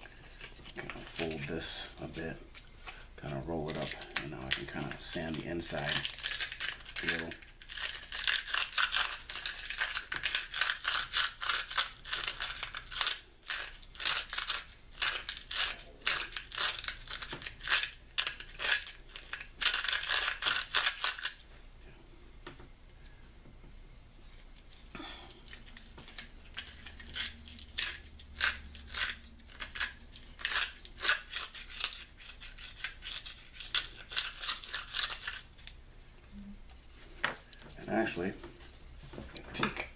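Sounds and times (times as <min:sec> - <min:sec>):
sandpaper rasping on bone: 0:05.7 - 0:21.4, 0:26.5 - 0:35.5.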